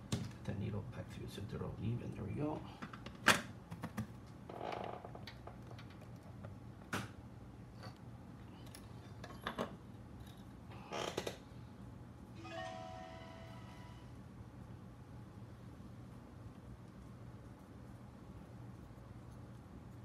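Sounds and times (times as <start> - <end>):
steady low hum: 0.0 - 20.0
faint held multi-pitch tone: 12.4 - 14.2.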